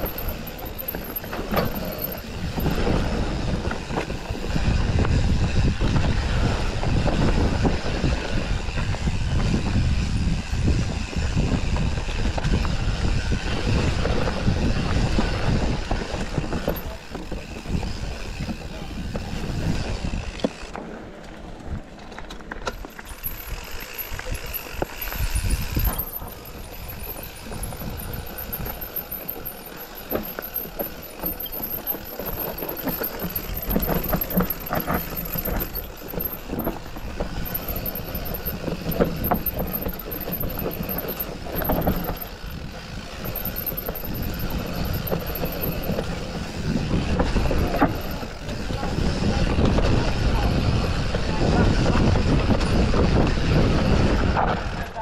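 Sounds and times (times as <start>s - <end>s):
wind on microphone: 0.0s - 20.4s, 22.9s - 55.0s
bike rattling over bumps: 0.0s - 55.0s
tyres rushing on dirt: 0.0s - 55.0s.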